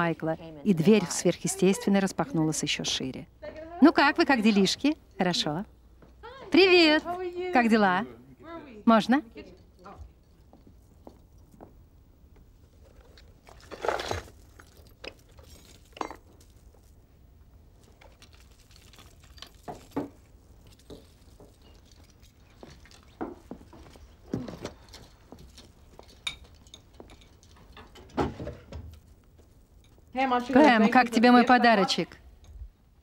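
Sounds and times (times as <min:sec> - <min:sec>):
small objects clinking: 0:13.6 - 0:17.0, 0:17.8 - 0:23.5, 0:24.8 - 0:28.0.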